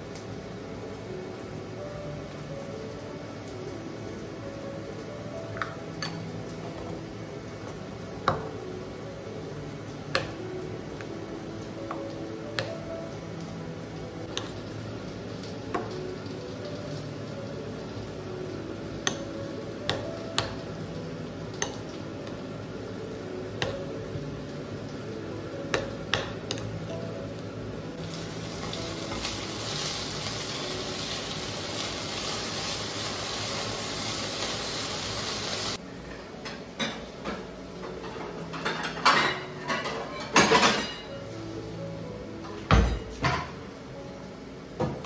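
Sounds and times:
potatoes sizzling in frying pan: 13.1 - 26.8, 27.4 - 35.8
plates clattering: 38.0 - 41.1.

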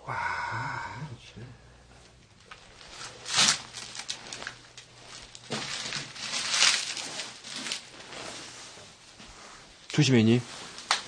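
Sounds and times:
footsteps crunching on debris: 2.4 - 8.5.

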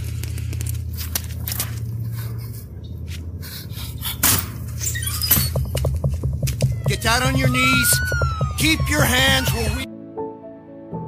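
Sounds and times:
running footsteps: 5.2 - 9.9.

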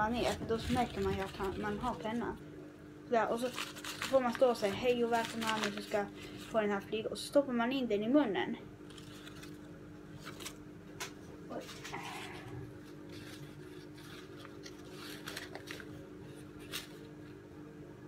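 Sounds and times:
steady low hum: 0.0 - 18.0
paper crinkling: 0.1 - 2.4, 3.2 - 6.8, 8.8 - 17.4.

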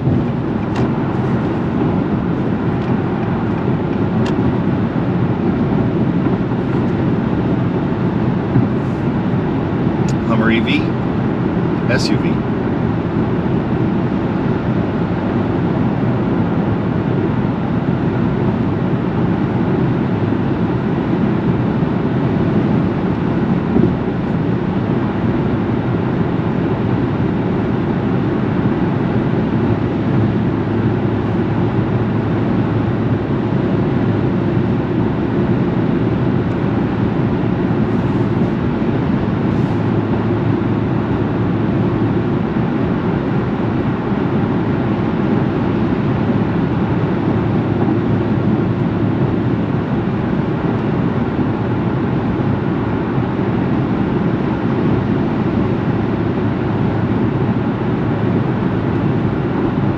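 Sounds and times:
low vehicle rumble: 0.0 - 14.8.

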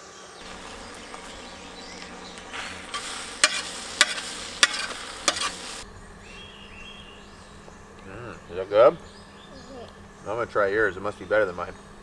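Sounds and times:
metal utensil scraping a pan: 0.4 - 5.8
eggs sizzling in a skillet: 0.4 - 5.9.

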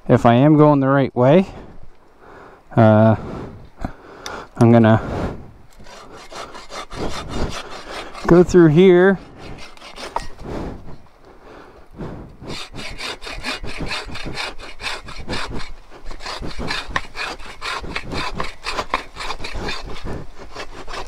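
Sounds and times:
wood rubbing and scraping: 4.6 - 21.0.

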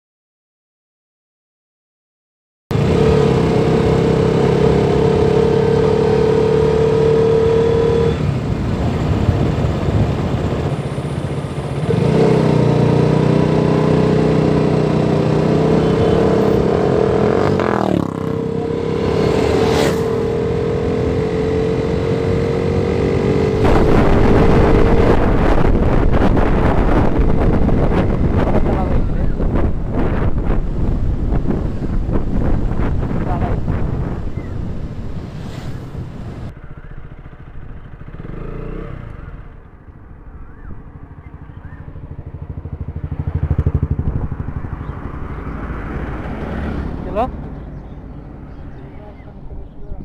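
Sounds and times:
motorcycle engine running: 7.9 - 34.7, 36.4 - 49.0.

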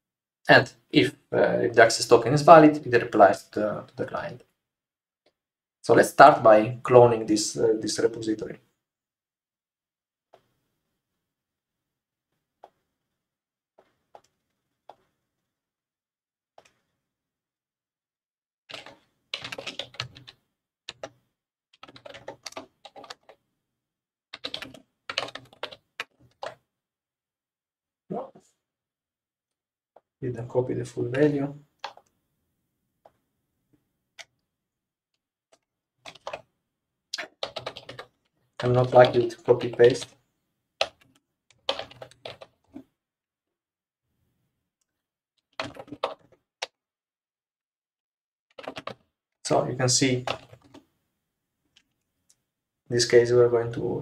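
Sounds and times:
typing on computer keyboard: 18.7 - 21.2, 21.8 - 23.4, 24.4 - 26.6, 36.0 - 36.5, 37.2 - 40.2, 40.8 - 42.8, 45.4 - 46.8, 48.5 - 49.0, 50.2 - 50.8.

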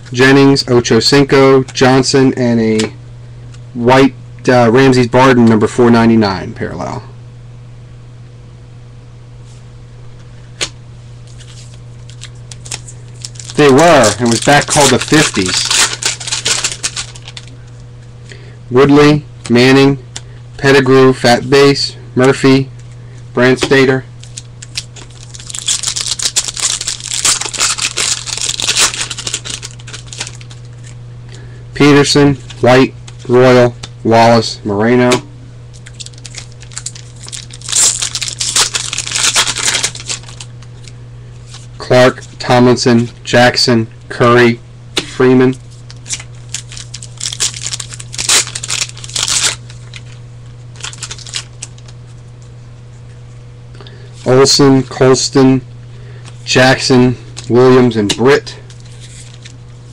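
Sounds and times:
wrapper being torn and crinkled: 11.3 - 17.6, 24.2 - 31.0, 35.7 - 40.9, 45.7 - 50.2, 50.8 - 52.0, 58.8 - 59.6
cards rustling and clicking: 11.3 - 17.9, 23.6 - 31.0, 35.7 - 42.2, 45.7 - 50.2, 50.8 - 52.0, 57.4 - 59.6.

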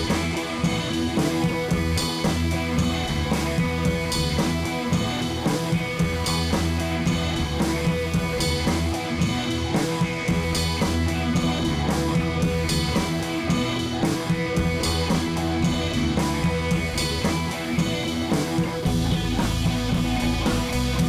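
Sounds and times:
drum kit beat: 0.0 - 21.0
rock music with electric guitar: 0.0 - 21.0.

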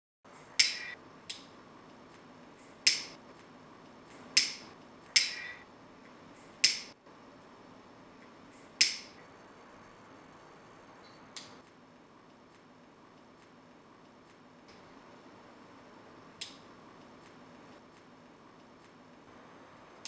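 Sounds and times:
lighter flicking: 2.6 - 3.2, 6.6 - 6.9, 8.6 - 9.1.

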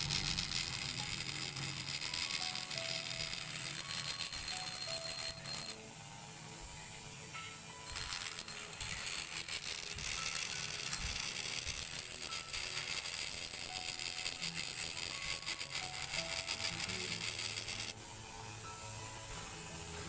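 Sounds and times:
die grinder cutting metal: 0.0 - 5.8, 7.9 - 18.0.

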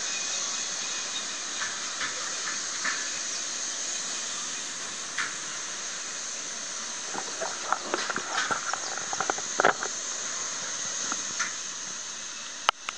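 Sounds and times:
monorail cars hissing past: 0.0 - 12.7.

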